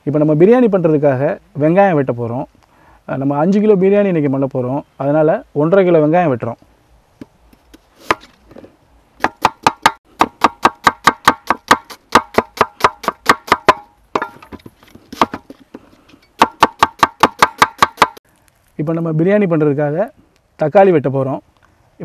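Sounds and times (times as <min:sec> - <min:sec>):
cleaver chopping on wooden board: 0:09.2 - 0:15.6, 0:16.4 - 0:18.2.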